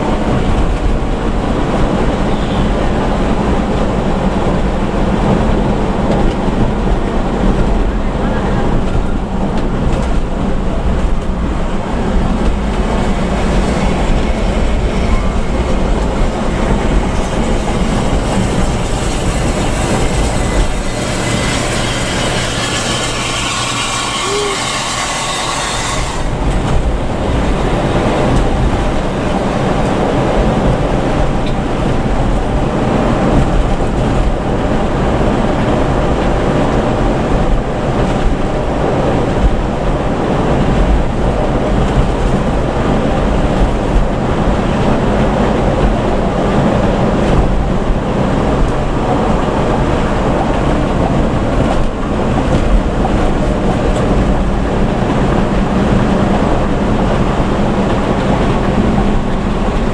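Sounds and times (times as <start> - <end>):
engine and road rumble drone: 0.0 - 59.9
rushing air and tyres hiss: 10.4 - 32.7.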